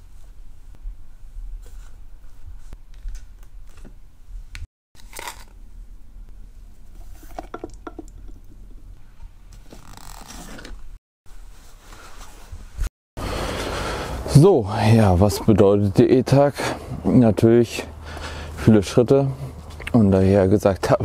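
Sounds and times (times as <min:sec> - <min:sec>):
rustling: 0:09.0 - 0:12.9.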